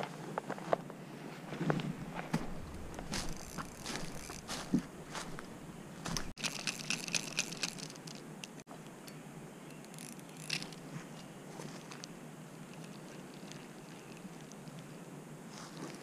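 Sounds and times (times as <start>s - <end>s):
footsteps in dry leaves: 1.5s - 6.6s, 15.5s - 16.0s.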